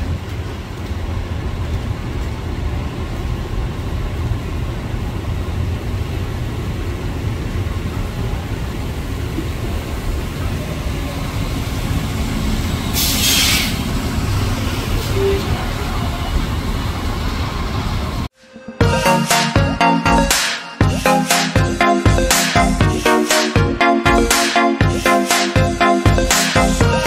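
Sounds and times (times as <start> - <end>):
train wheels rumbling on rail: 0.0 - 18.3
air brakes hissing: 12.9 - 13.9.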